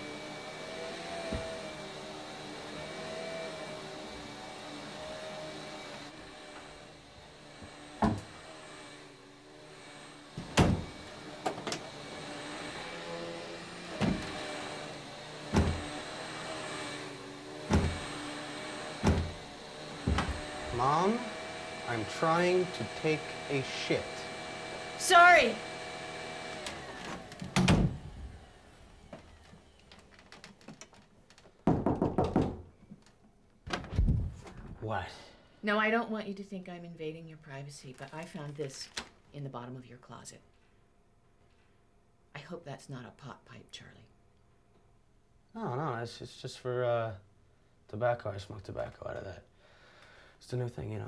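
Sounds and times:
vacuum cleaner motor hum: 0.0 - 31.0
door thudding shut: 8.0 - 8.3, 10.4 - 11.8, 14.0 - 14.4, 15.5 - 15.9, 17.7 - 18.0, 19.0 - 19.4, 20.0 - 20.4, 27.4 - 28.0
vacuum head knocking on wooden door: 8.0 - 8.3, 15.5 - 16.0, 17.6 - 18.1, 19.0 - 19.4, 20.0 - 20.6, 31.6 - 32.7.

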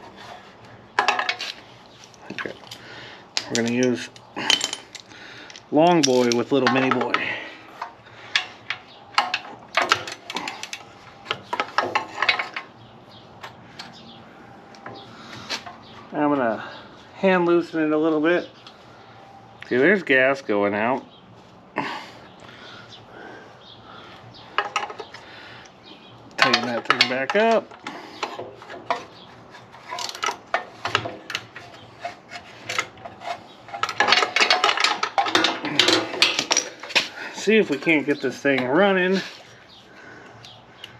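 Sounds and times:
hand tools clicking on metal: 1.0 - 12.7, 24.6 - 29.1, 29.8 - 38.8.

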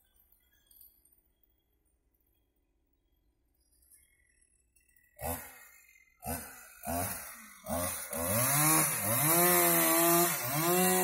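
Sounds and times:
small engine starting and running: 4.0 - 11.0.

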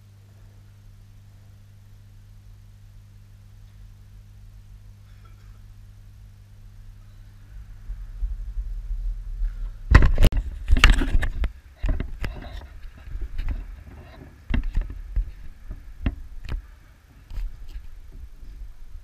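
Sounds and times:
sharp clicks and thuds: 9.4 - 16.6
camera handling knocks and rubbing: 10.0 - 16.6.

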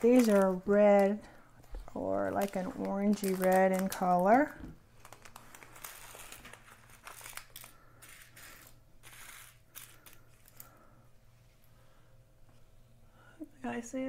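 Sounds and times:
plastic bag crinkling: 0.0 - 1.3, 1.9 - 10.8.

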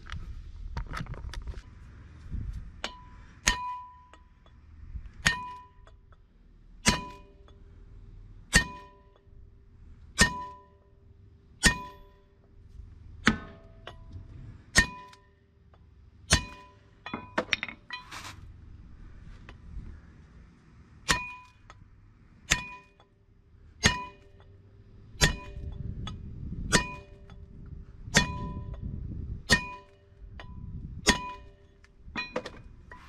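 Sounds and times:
sledgehammer striking metal: 2.8 - 4.2, 5.2 - 5.9, 6.8 - 7.6, 8.5 - 9.2, 10.2 - 10.8, 11.6 - 12.3, 13.2 - 14.1, 14.7 - 15.4, 16.3 - 18.3, 21.0 - 21.7, 22.4 - 23.1, 23.8 - 24.5, 25.2 - 25.8, 26.7 - 27.3, 29.5 - 31.6.

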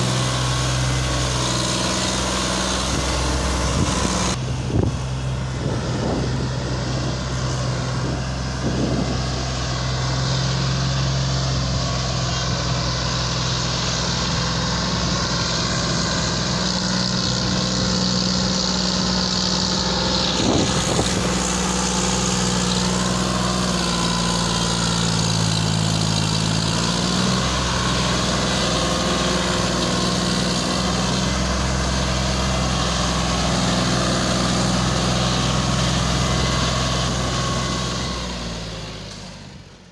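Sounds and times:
tractor diesel engine under load: 0.0 - 39.9.

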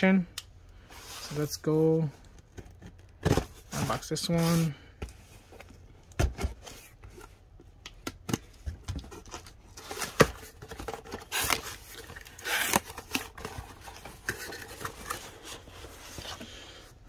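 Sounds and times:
packaging tearing: 9.8 - 13.6.

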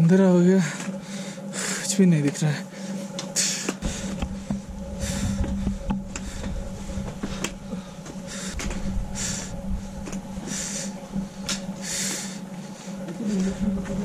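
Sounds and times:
steady low hum: 0.0 - 14.0
person breathing hard: 0.8 - 1.9, 2.7 - 13.8
low rumbling thumps: 3.8 - 14.0.

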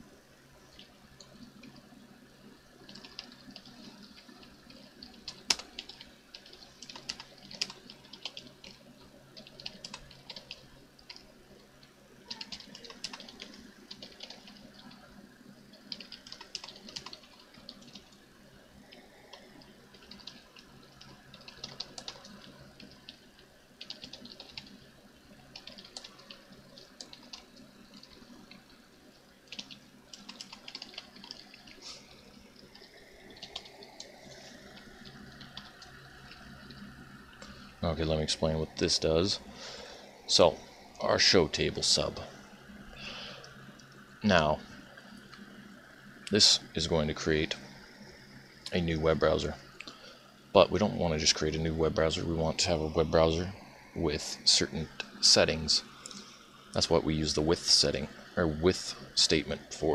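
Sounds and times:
faint background hiss: 0.0 - 59.9
typing on a computer keyboard: 2.8 - 8.8, 9.4 - 11.3, 12.3 - 15.0, 15.7 - 18.2, 19.3 - 23.2, 23.8 - 24.8, 25.5 - 28.2, 29.5 - 31.8, 32.7 - 34.1, 34.7 - 36.8.

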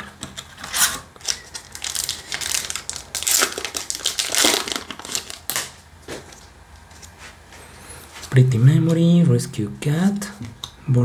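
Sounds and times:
cards rustling: 0.3 - 7.4
foil wrapper crinkling and tearing: 0.6 - 6.4.

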